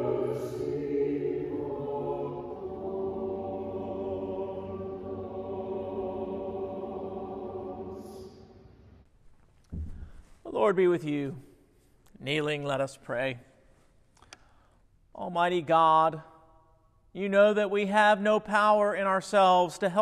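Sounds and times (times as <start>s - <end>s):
church choir singing chords: 0.0s - 9.1s.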